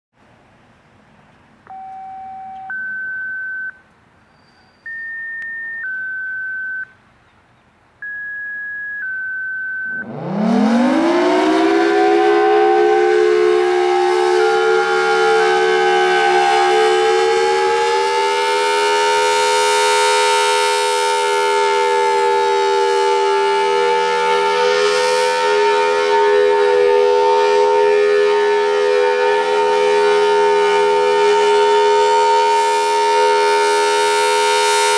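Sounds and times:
two-tone radio beeps: 1.7 - 3.8, 4.8 - 7.0, 8.0 - 10.1
siren wailing: 9.8 - 34.9.

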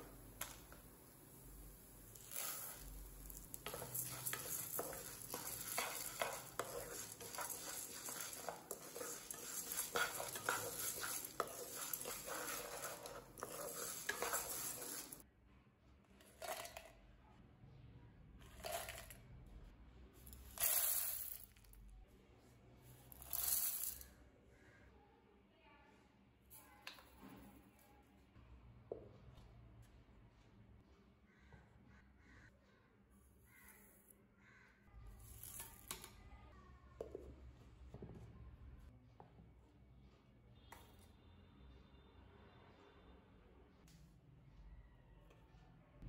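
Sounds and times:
lentils rattling and sizzling: 0.1 - 15.2, 20.4 - 21.5, 23.1 - 24.1, 35.1 - 36.2
lentils poured into a jar: 2.0 - 15.2, 18.5 - 19.2, 20.4 - 21.6, 23.1 - 24.1
wooden spatula scraping a pan: 2.2 - 15.2.

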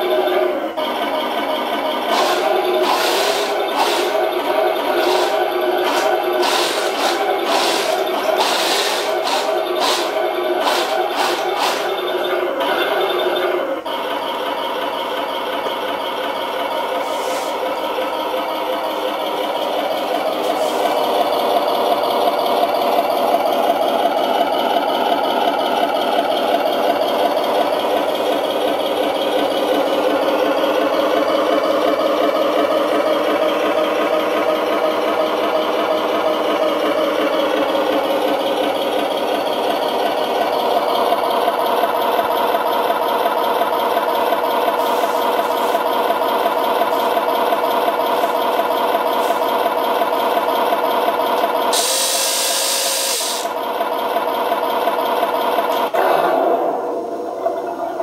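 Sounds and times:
simulated tank engine idle: 0.0 - 58.0.

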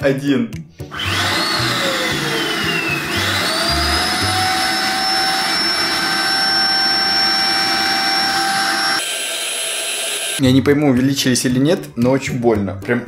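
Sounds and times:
vacuum cleaner motor whining: 0.9 - 10.4.

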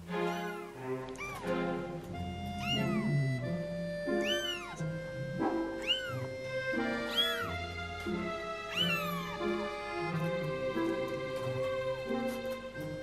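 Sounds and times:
background music sustained notes: 0.0 - 13.0
kittens meowing: 0.2 - 5.0, 5.7 - 7.6, 8.6 - 10.4.

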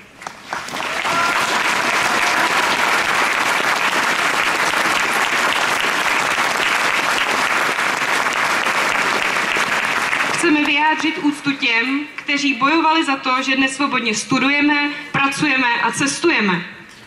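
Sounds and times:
crowd applauding: 0.1 - 11.2.

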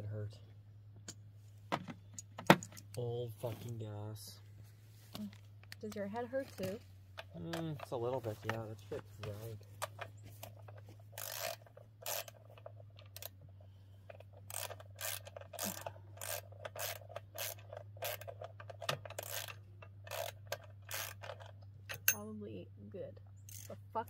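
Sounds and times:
ratchet wrench rasping: 9.9 - 13.4, 14.1 - 22.2, 23.5 - 23.9.

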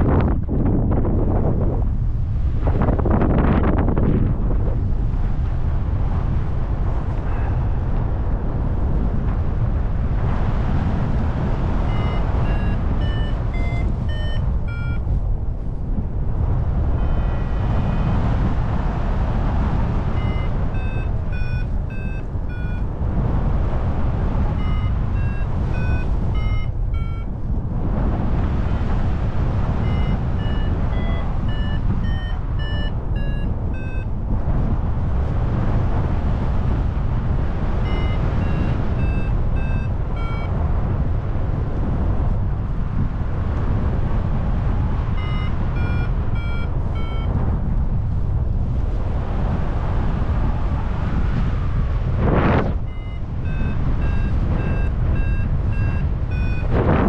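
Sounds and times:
wind rushing over microphone: 0.0 - 57.0
variometer beeping: 11.3 - 15.2, 17.0 - 18.0, 19.5 - 27.4, 29.4 - 34.2, 37.8 - 40.7, 45.0 - 47.4, 52.2 - 57.0.

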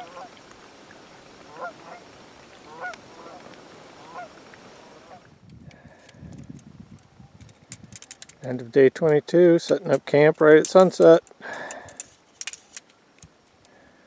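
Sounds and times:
geese honking: 0.0 - 0.4, 1.5 - 5.3.

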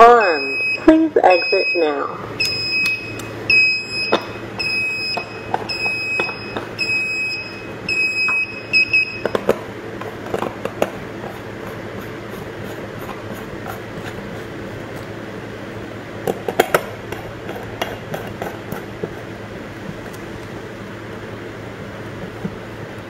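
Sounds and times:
alarm panel short high beeps: 0.0 - 9.3.

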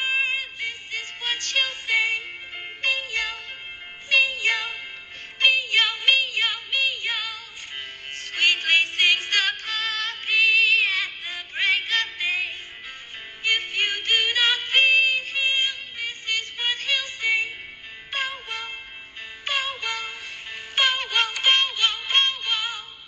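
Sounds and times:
light instrumental backing: 0.0 - 23.0
person singing children's song: 0.0 - 23.0.

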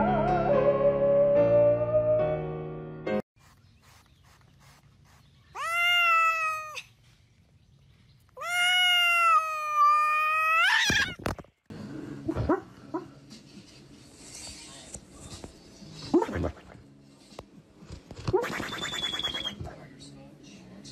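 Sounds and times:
cat meowing: 5.6 - 6.9, 8.4 - 11.2.

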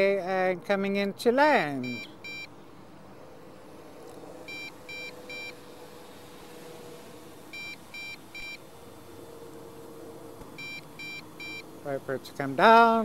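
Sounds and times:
faint steady hum: 0.0 - 13.0
short high electronic beeps: 1.8 - 2.5.

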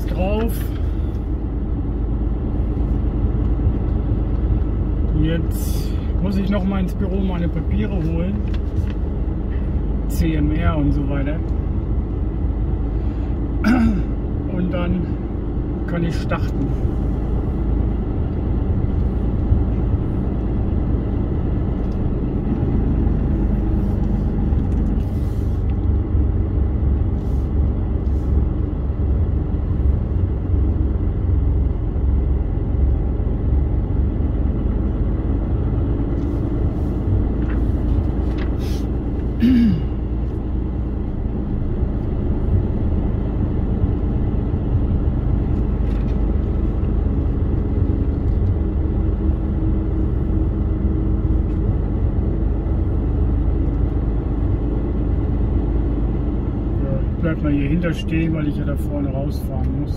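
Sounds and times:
diesel truck engine rumbling: 0.0 - 59.9
air brake hiss: 38.6 - 38.9.

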